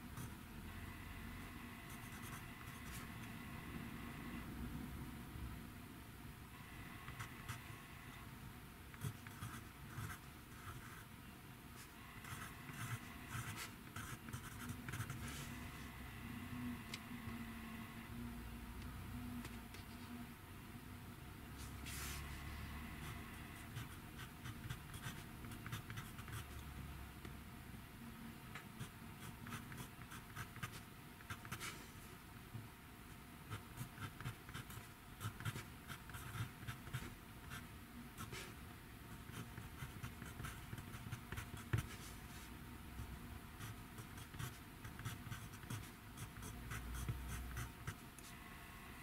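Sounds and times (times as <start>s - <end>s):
pencil scratching on paper: 12.0s - 15.8s, 43.6s - 48.0s.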